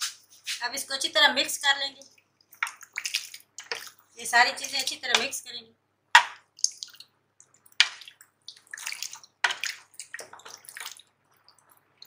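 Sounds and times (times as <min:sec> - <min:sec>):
sloshing and splashing: 0:02.4 - 0:04.2, 0:06.4 - 0:12.0
spoon stirring in a pot: 0:06.2 - 0:11.9.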